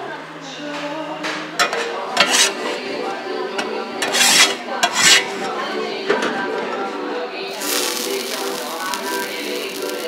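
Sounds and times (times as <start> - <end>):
metal utensils scraping on steel: 1.7 - 2.7, 4.0 - 5.4.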